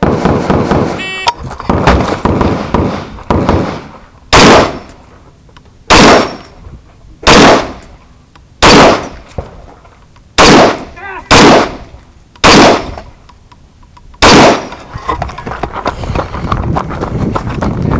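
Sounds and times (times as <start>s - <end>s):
rifle shots with echo: 0.0s - 1.0s, 1.7s - 5.0s, 5.9s - 6.5s, 7.2s - 7.9s, 8.6s - 9.2s, 10.4s - 13.1s, 14.2s - 14.9s.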